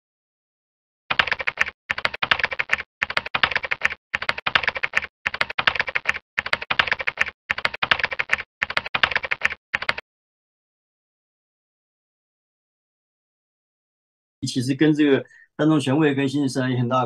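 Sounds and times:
rapid keyboard keystrokes: 1.1 - 10.0.

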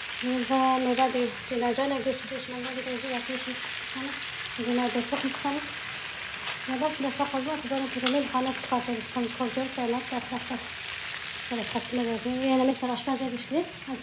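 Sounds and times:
fish sizzling in hot oil: 0.0 - 14.0
metal tongs clicking: 7.7 - 8.7.

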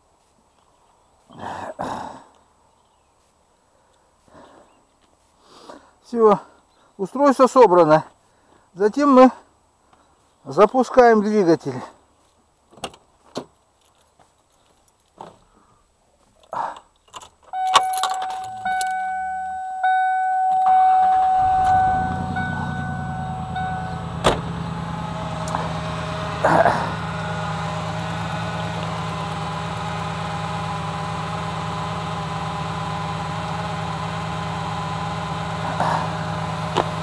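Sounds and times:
keys jangling: 17.0 - 19.1
car warning tone: 17.5 - 28.7
car engine idling: 17.6 - 37.0
car door slamming: 20.5 - 26.4.

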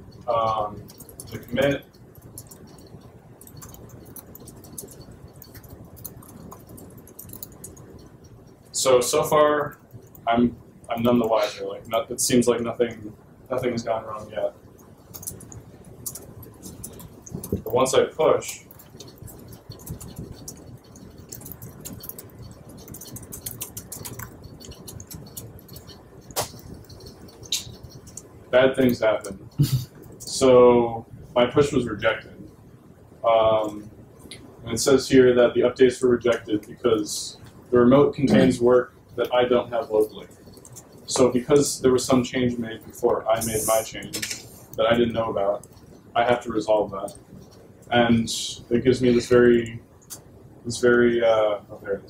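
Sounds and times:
laptop keyboard clicking: 0.0 - 8.6, 14.8 - 30.3, 39.7 - 41.7
low room hum: 0.0 - 52.0.

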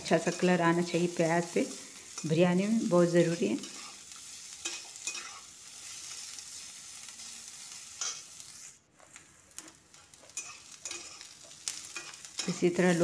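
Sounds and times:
onions sizzling in hot oil: 0.0 - 13.0
spatula scraping metal pan: 8.0 - 13.0.

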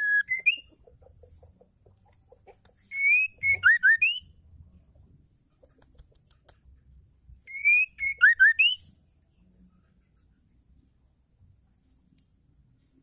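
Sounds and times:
bird whistling: 0.0 - 0.7, 2.9 - 4.3, 7.5 - 8.8.

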